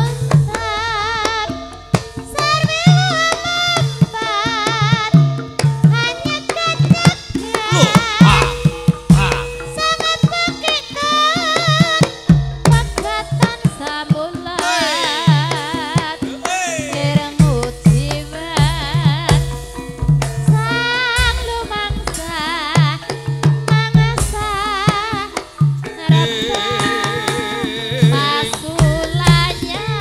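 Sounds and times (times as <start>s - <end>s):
hand-drum strokes: 0.0s - 30.0s
high wavering melody: 7.4s - 12.0s
sustained gamelan tone: 7.5s - 13.4s, 25.8s - 30.0s.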